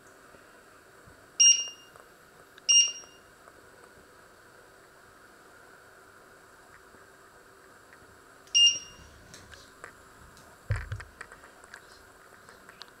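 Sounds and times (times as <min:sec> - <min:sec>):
hob touch control beep: 0:01.4 - 0:01.9, 0:02.7 - 0:03.2, 0:08.5 - 0:09.0
dull thump: 0:10.7 - 0:11.1.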